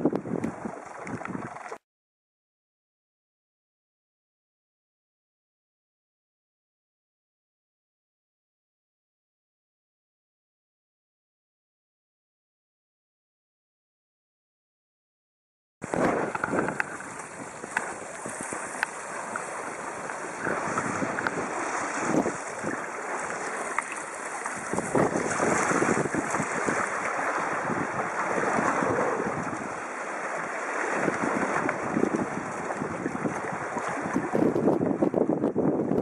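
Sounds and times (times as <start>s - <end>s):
wind buffeting microphone: 0.0s - 1.6s, 15.8s - 36.0s
waves splashing along boat hull: 0.0s - 1.8s, 15.8s - 36.0s.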